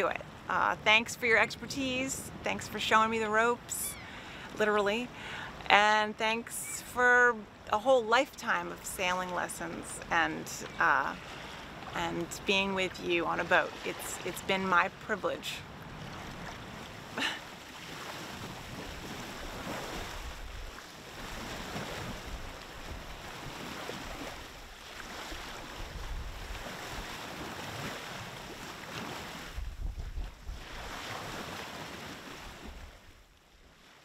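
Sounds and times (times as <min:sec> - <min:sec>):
water washing around boat: 0:08.8 - 0:34.0
wind buffeting microphone: 0:25.3 - 0:27.9, 0:29.0 - 0:31.0.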